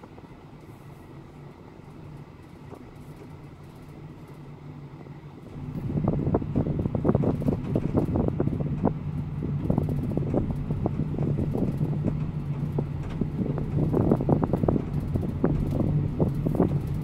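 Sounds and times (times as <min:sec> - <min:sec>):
car engine and road hum: 0:00.0 - 0:17.0
small clicks and rattles: 0:02.1 - 0:04.5, 0:06.5 - 0:17.0.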